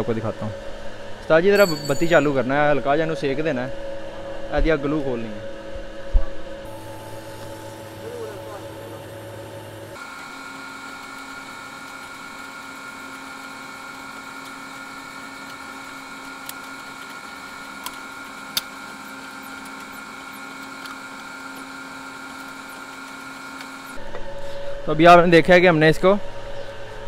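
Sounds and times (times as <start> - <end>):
mechanical hum: 0.0 - 27.0.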